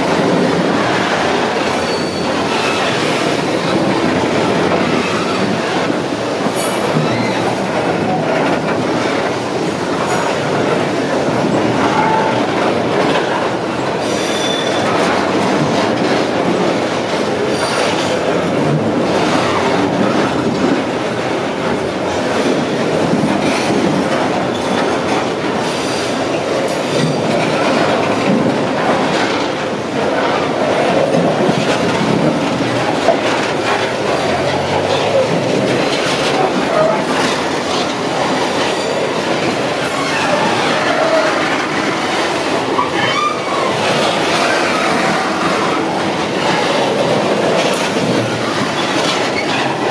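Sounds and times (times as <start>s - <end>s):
train wheels rumbling on rails: 0.0s - 49.9s
wheel squeals: 1.8s - 3.0s, 14.0s - 14.9s.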